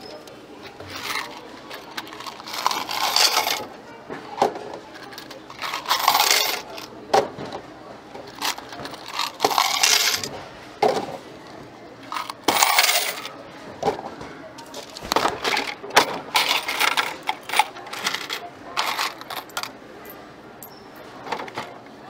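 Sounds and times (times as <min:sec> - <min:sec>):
coins and goods clinking: 0:00.0 - 0:03.7, 0:05.0 - 0:06.9, 0:08.2 - 0:10.3, 0:12.1 - 0:13.3, 0:14.8 - 0:21.7.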